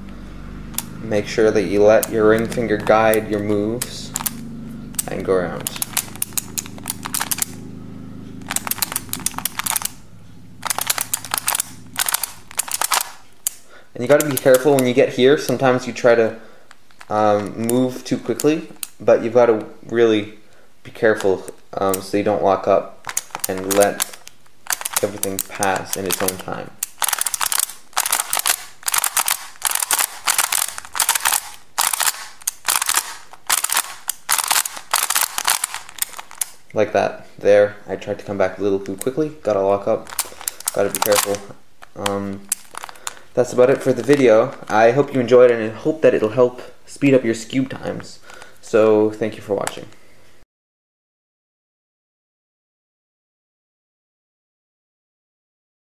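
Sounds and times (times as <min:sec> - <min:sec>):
plastic puzzle clicking: 0:00.7 - 0:00.9, 0:01.8 - 0:07.6, 0:08.4 - 0:10.0, 0:10.6 - 0:15.8, 0:16.6 - 0:19.0, 0:23.0 - 0:36.7, 0:40.0 - 0:44.8.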